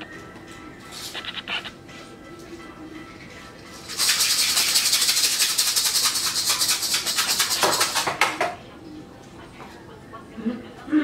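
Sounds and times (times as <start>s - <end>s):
coffee beans rattling in container: 3.8s - 8.2s.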